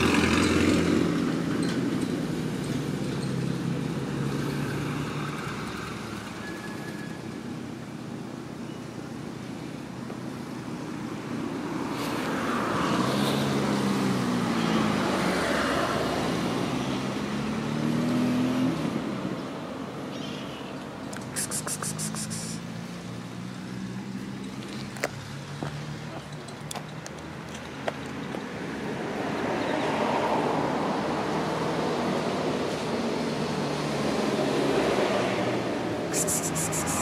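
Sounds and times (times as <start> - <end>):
vehicle passing close by: 0.0 - 7.1, 11.0 - 19.7, 21.2 - 26.2, 28.6 - 37.0
traffic background: 0.0 - 37.0.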